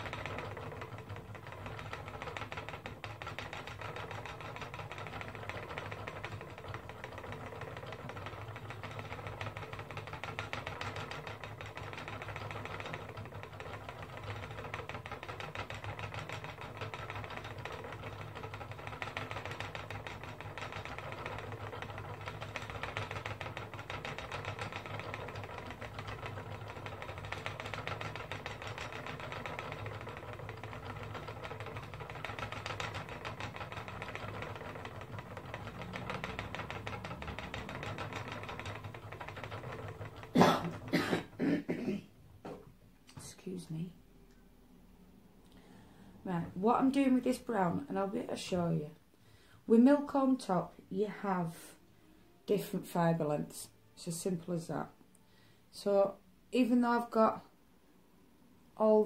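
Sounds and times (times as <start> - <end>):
spinning wheel clattering: 0.0 - 41.4, 46.3 - 49.0.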